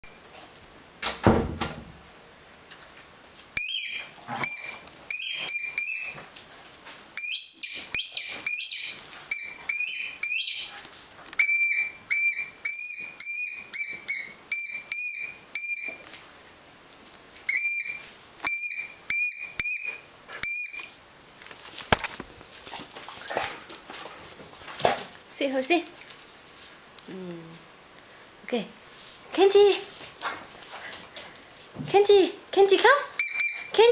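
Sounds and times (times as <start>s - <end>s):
thump: 1.0s - 1.9s
squeaky dog toy squeaking: 3.6s - 6.2s, 7.2s - 10.7s, 11.4s - 16.0s, 17.5s - 20.9s, 33.2s - 33.9s.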